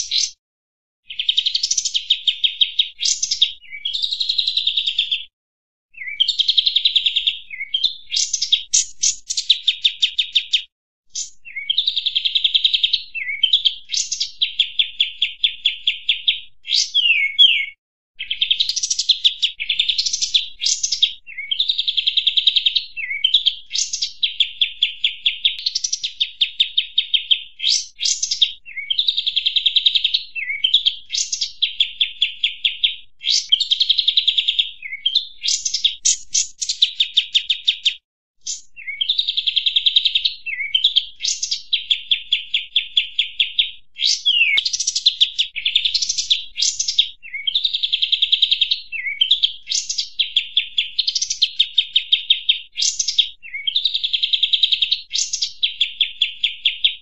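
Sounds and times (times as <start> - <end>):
bird trills: 0.0 - 0.4, 6.0 - 29.3, 29.9 - 32.4, 33.2 - 47.8, 48.4 - 54.0
rising bird chirps: 0.0 - 0.4, 6.0 - 29.2, 29.9 - 47.8.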